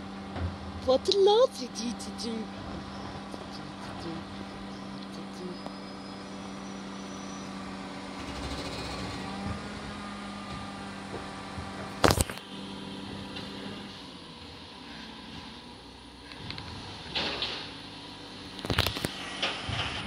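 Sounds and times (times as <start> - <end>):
diesel engine humming: 0.0 - 20.0
loud clunk: 19.3 - 20.0.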